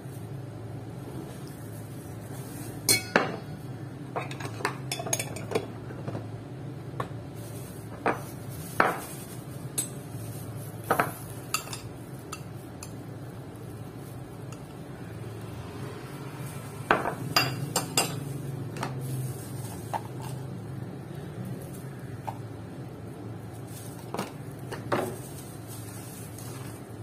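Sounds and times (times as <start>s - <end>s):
spoon clinking against bowl and jars: 2.9s - 3.5s, 4.2s - 5.7s, 10.9s - 13.0s, 17.0s - 18.3s.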